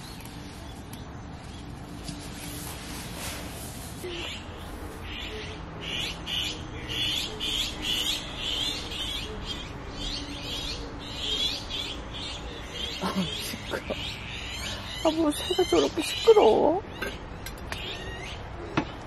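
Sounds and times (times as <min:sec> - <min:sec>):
small birds chirping: 0:00.0 - 0:03.4, 0:04.0 - 0:19.0.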